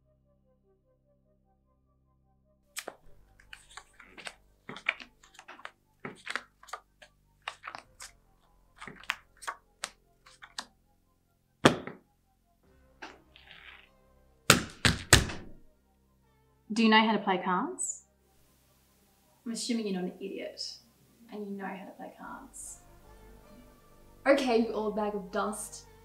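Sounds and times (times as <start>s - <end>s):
playing cards being shuffled: 2.8s - 10.7s, 11.6s - 12.0s, 13.0s - 13.9s, 14.5s - 15.7s
thud on table: 11.6s - 12.0s.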